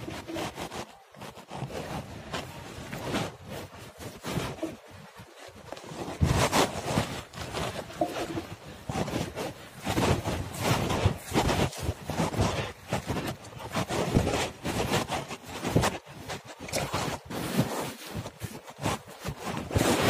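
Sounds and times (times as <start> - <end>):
phone handling rustling and scraping: 7.7 - 8.7.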